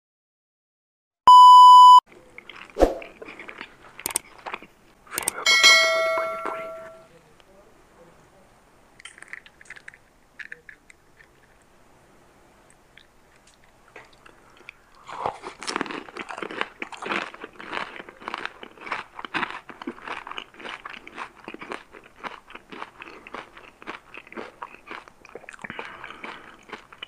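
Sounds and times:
crisp shell crunching and chewing: 2.1 - 5.4, 9.0 - 11.7, 12.7 - 27.0.

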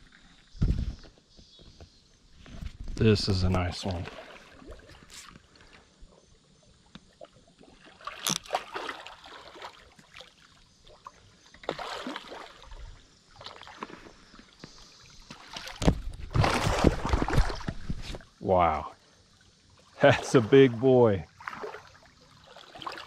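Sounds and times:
fish thrashing water splashing: 7.8 - 10.4, 11.6 - 12.7, 15.3 - 17.9.

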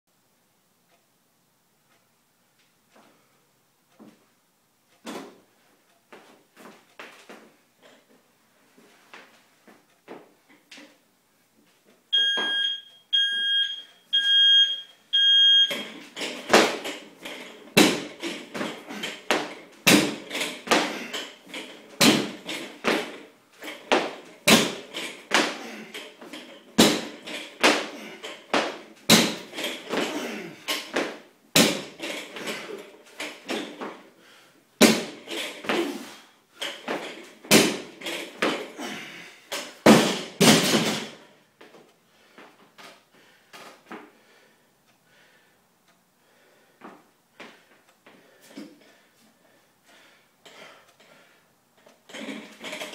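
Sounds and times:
interval timer beeping: 12.1 - 15.9
barbell landing on floor: 17.7 - 21.0, 22.0 - 25.6, 26.3 - 32.6, 34.8 - 35.9, 36.7 - 38.7, 39.6 - 41.2.

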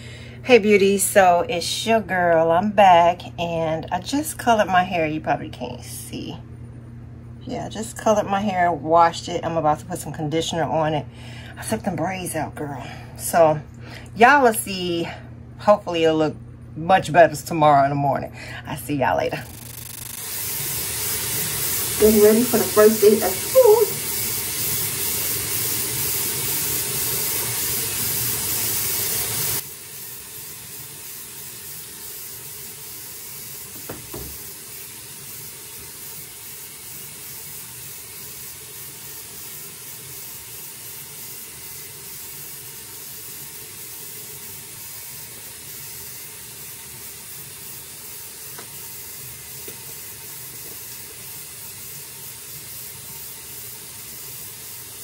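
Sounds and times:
water running from sink tap: 19.3 - 55.0.

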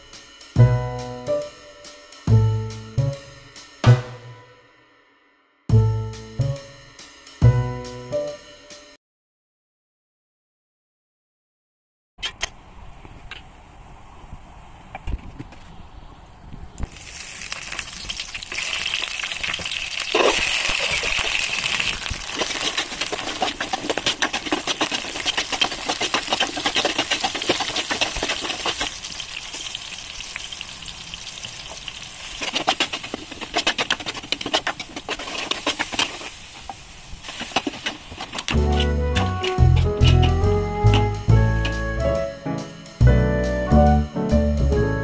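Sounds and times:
onions sizzling in hot oil: 16.9 - 38.8
ladle scraping metal pot: 18.6 - 29.7, 31.6 - 42.0.

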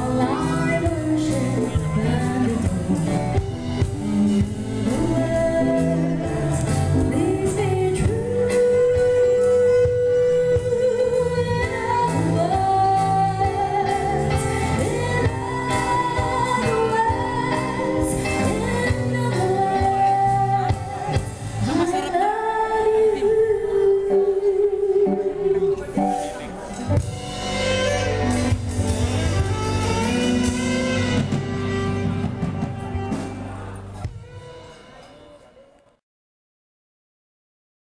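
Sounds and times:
drum kit: 0.0 - 21.8, 26.0 - 34.9
woman singing: 0.0 - 26.0
keyboard: 0.0 - 35.8.

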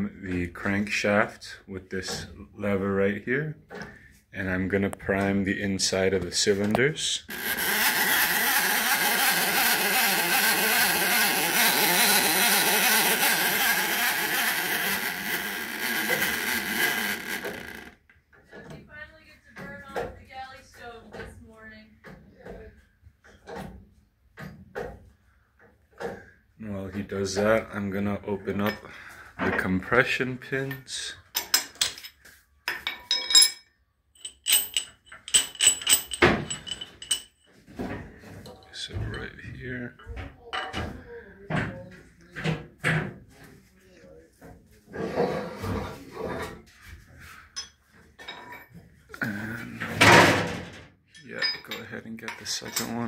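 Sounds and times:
wavering rattle: 7.2 - 18.0, 34.2 - 37.4
machine running: 7.3 - 17.9
metal clinks and taps: 31.4 - 37.6.

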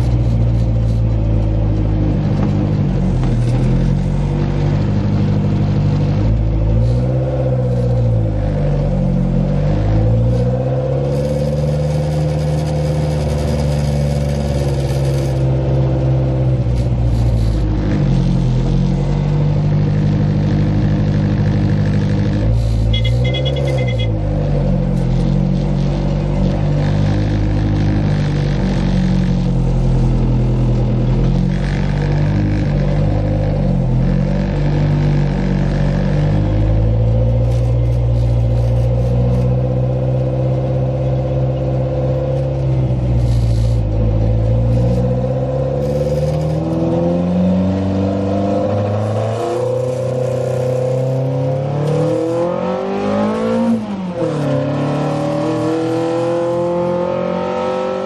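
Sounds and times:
car engine revving in traffic: 0.0 - 58.0.

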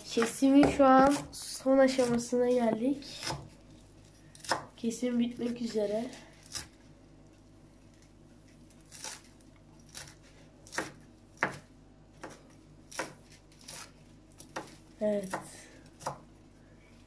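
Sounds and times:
knife chopping on wooden board: 0.2 - 1.3, 2.0 - 3.5, 9.9 - 16.3.

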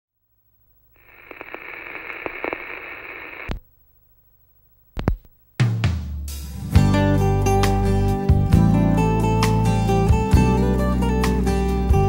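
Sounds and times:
vinyl record hiss and crackle: 0.1 - 5.7
stylus thumps on record: 1.0 - 3.7, 4.9 - 5.4.

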